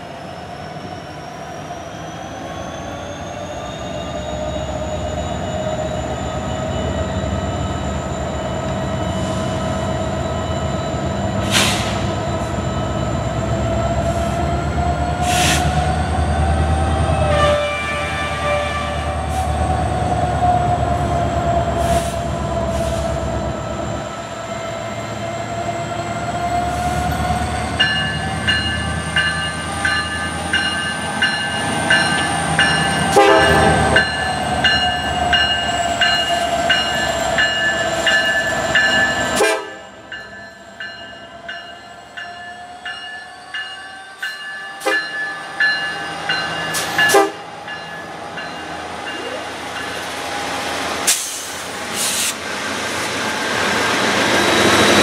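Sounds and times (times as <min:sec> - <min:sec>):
locomotive horn blast: 0:17.1 - 0:19.2, 0:33.1 - 0:34.0, 0:39.4 - 0:39.9, 0:47.1 - 0:47.5
train wheels clicking over rail: 0:51.0 - 0:52.5.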